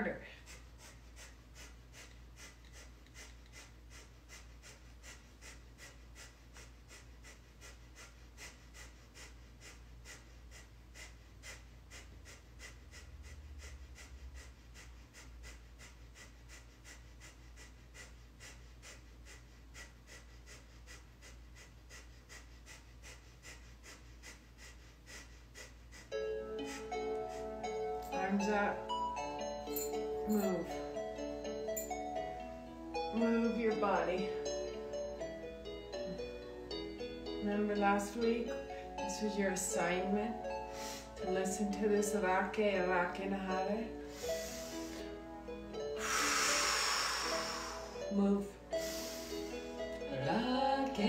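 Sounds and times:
rapid forceful nose breathing: 0.3 - 32.5, 40.5 - 41.4, 44.0 - 50.1.

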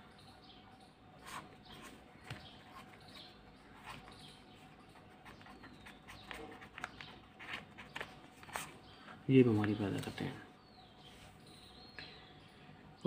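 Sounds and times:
faint bird chirps: 0.0 - 13.0
pen scratching on paper: 2.6 - 8.8.

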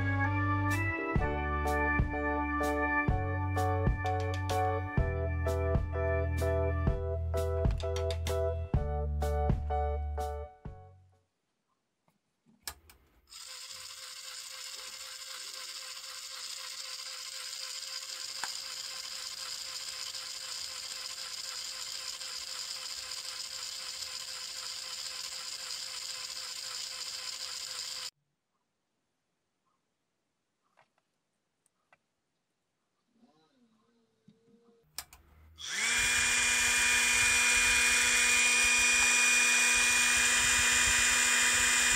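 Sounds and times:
clicks: 4.0 - 4.6, 7.7 - 8.4, 35.0 - 35.3
small gear motor whirring: 13.3 - 28.1, 35.6 - 41.9.

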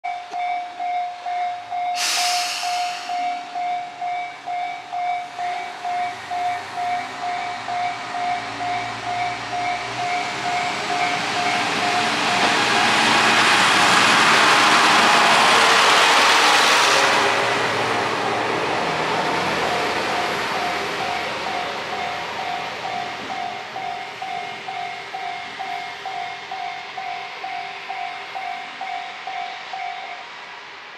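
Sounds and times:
diesel railcar accelerating: 0.1 - 30.9
air hiss: 2.0 - 3.5
level crossing bell ringing: 19.7 - 30.2.

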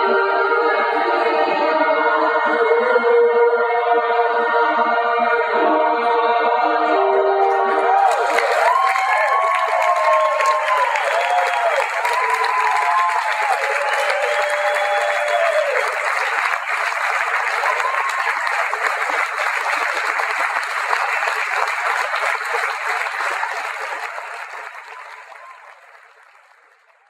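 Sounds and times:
audience applauding: 7.4 - 27.0.

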